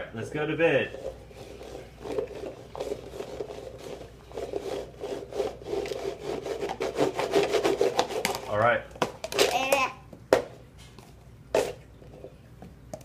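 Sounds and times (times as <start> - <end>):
plastic cups scraping on tabletop: 0.8 - 8.6, 11.0 - 12.4
plastic cups clicking and knocking: 0.9 - 5.2, 6.6 - 13.0.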